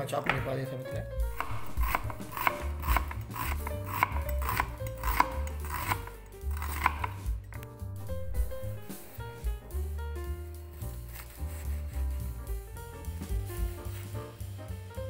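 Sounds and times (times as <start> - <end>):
background music: 0.0 - 15.0
knife chopping on cutting board: 0.2 - 0.6, 1.2 - 7.7.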